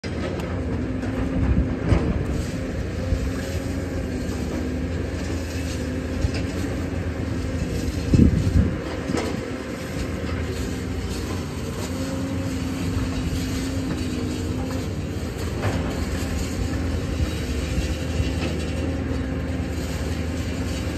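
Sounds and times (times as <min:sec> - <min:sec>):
construction machinery humming: 0:00.0 - 0:20.9.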